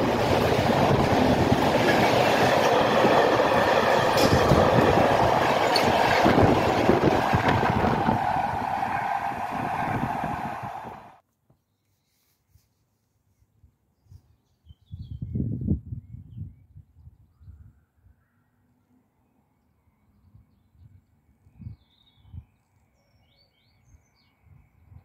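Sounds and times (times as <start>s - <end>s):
train wheels clattering over rails: 0.0s - 11.2s.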